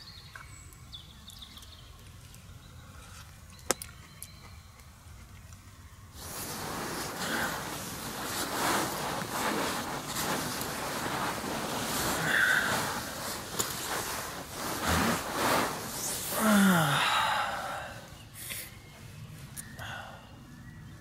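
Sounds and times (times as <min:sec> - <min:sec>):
fabric rustling: 0:06.2 - 0:17.2
person sighing: 0:15.9 - 0:18.1.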